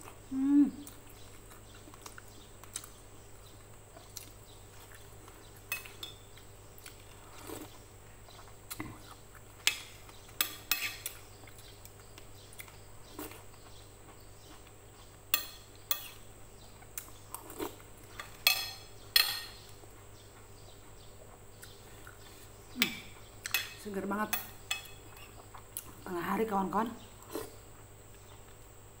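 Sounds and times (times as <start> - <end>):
cutlery clinking on ceramic plate: 18.2 - 19.6.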